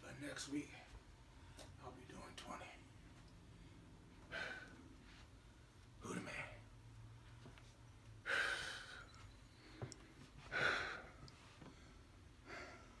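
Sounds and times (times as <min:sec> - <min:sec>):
man breathing out heavily: 0:04.2 - 0:04.8, 0:08.2 - 0:09.2, 0:09.8 - 0:11.3.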